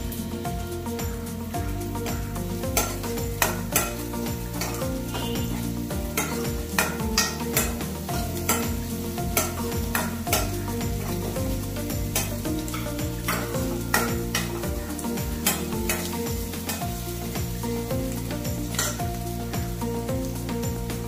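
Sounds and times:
shallots sizzling in oil: 0.0s - 21.0s
metal ladle scraping pan: 2.7s - 17.0s, 18.7s - 19.0s.

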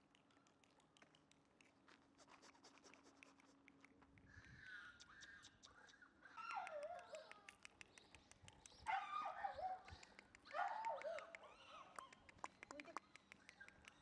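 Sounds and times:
faint clicks: 0.0s - 9.0s, 9.6s - 14.0s
puppy whining: 6.3s - 7.6s.

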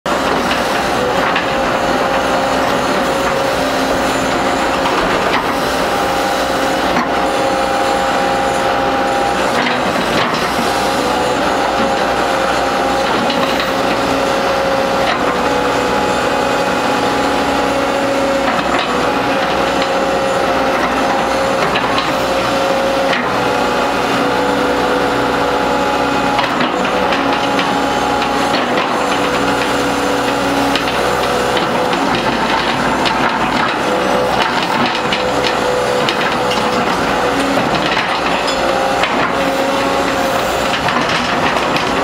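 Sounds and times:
excavator engine and hydraulic drone: 0.1s - 42.0s.

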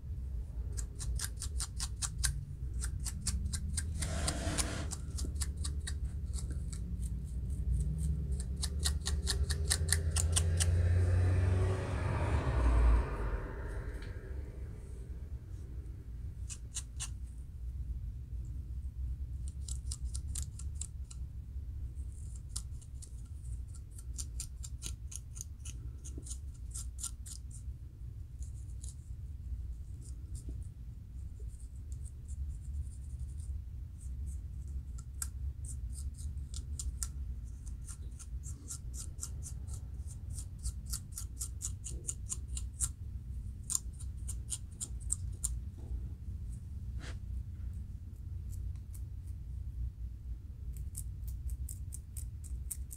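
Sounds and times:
steady low hum: 0.0s - 52.9s
metal comb scraping scalp: 3.8s - 5.5s.

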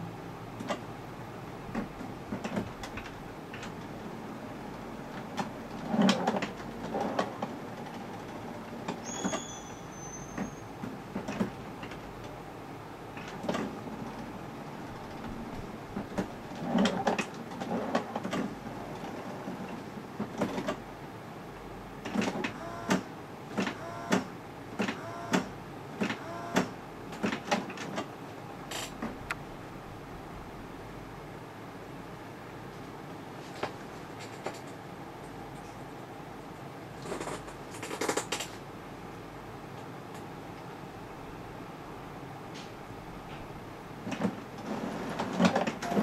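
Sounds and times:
printer mechanism clicking: 22.0s - 28.0s
printer motor whirring: 22.3s - 27.6s.

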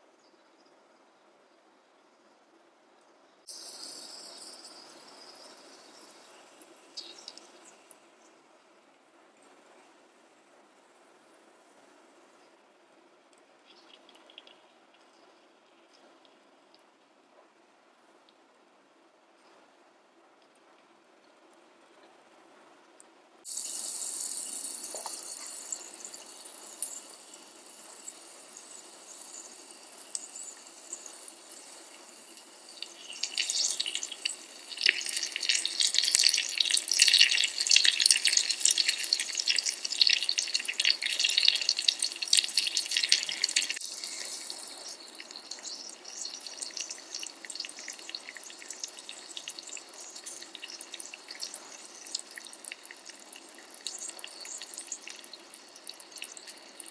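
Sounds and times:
anchovies sizzling in hot oil: 3.4s - 8.3s, 23.5s - 56.9s.

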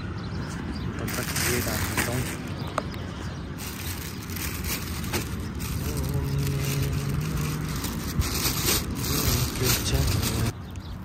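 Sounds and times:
road traffic rumble: 0.0s - 11.0s
vehicle engine hum: 0.0s - 11.0s
plastic bag crinkling: 1.1s - 2.6s, 3.6s - 10.6s.

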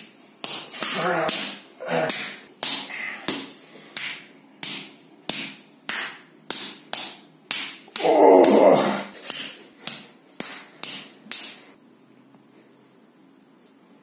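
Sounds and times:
loud human voice: 8.0s - 9.1s.

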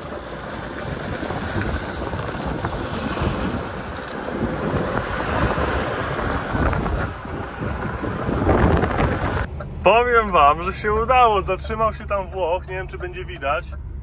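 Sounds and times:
wind buffeting microphone: 0.0s - 9.8s
diesel lorry engine running: 0.0s - 14.0s.

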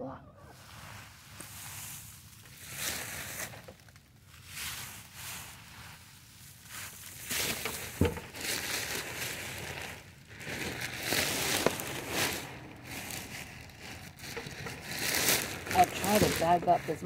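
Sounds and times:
plastic bag crinkling: 6.4s - 17.0s.

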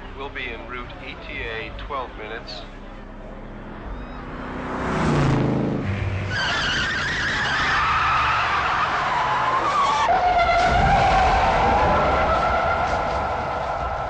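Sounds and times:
tire screeching: 2.6s - 14.0s
car engine passing: 2.8s - 14.0s.

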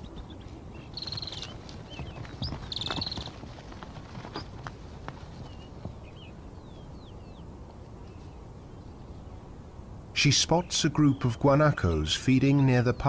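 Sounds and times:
hooves knocking: 0.9s - 6.3s.

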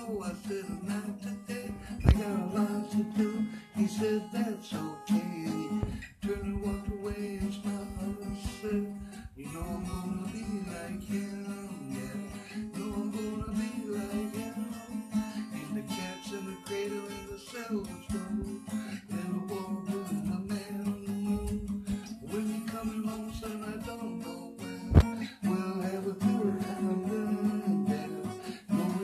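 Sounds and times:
acoustic guitar strumming: 0.0s - 29.0s.

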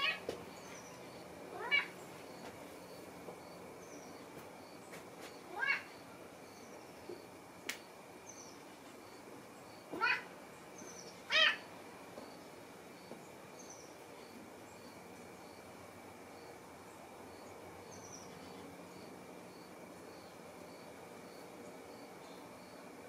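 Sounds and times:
cat meowing: 0.0s - 0.2s, 1.5s - 1.9s, 5.5s - 5.9s, 10.0s - 10.3s, 11.3s - 11.6s.

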